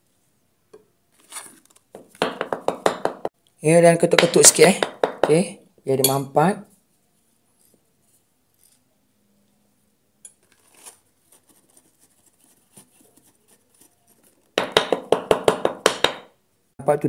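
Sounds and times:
bamboo tube knocking: 2.0s - 3.4s, 4.2s - 5.5s, 14.6s - 16.4s.

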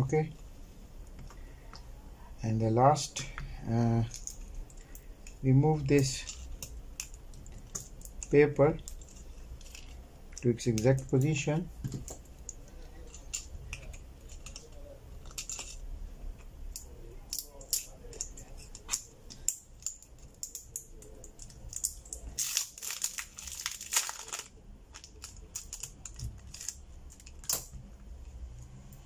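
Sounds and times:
faint low hum: 0.0s - 29.0s
crinkling rustle: 19.8s - 27.5s.

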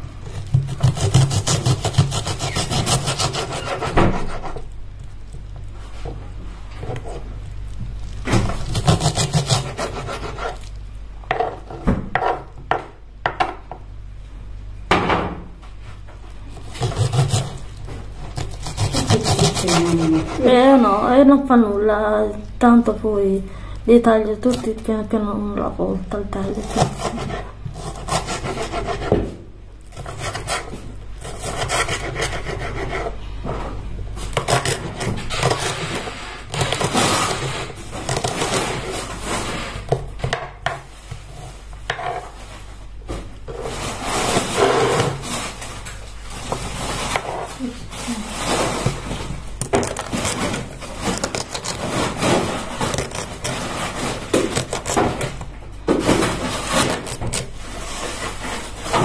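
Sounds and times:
knife cutting on wooden board: 0.5s - 4.6s, 8.5s - 10.7s, 16.6s - 17.6s, 18.3s - 20.5s, 26.6s - 29.3s, 29.9s - 33.2s.

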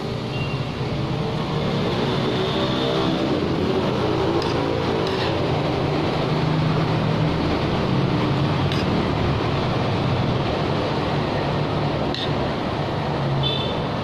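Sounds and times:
road traffic rumble and hiss: 0.0s - 14.0s
metal spoon clinking on plate: 4.4s - 5.5s.

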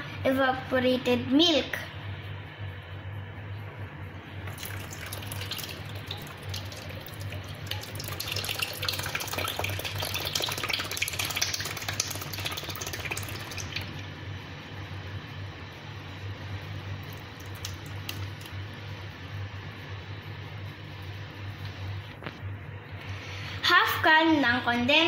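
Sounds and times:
milk pouring into plastic bowl: 4.4s - 14.0s
milk splashing: 4.5s - 14.0s, 17.0s - 18.5s.

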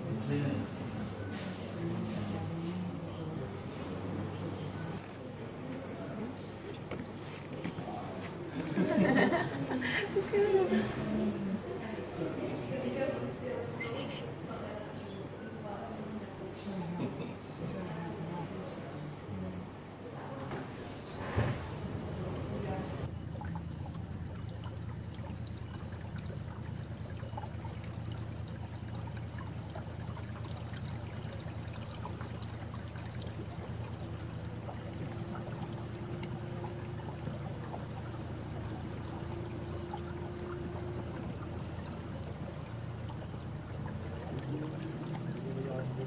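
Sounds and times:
insects chirping: 21.4s - 46.0s
outboard motor running: 21.4s - 46.0s.

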